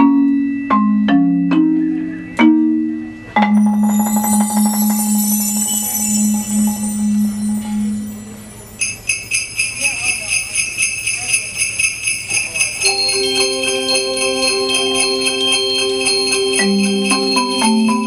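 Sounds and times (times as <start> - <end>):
mallet percussion notes: 0.0 - 18.0
sleigh bells shaken: 3.6 - 18.0.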